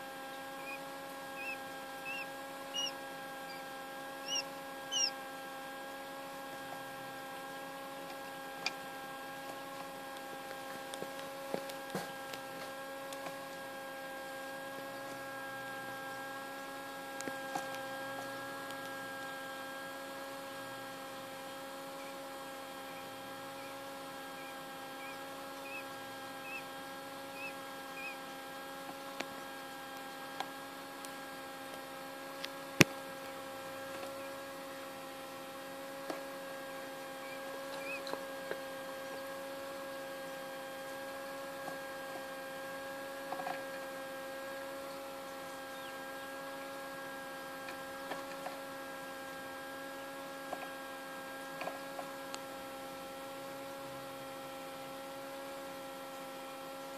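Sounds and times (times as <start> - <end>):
incubator fan humming: 0.0 - 56.9
chicks peeping: 0.3 - 5.2, 22.8 - 26.7, 27.3 - 28.3, 37.2 - 38.2, 44.9 - 46.0.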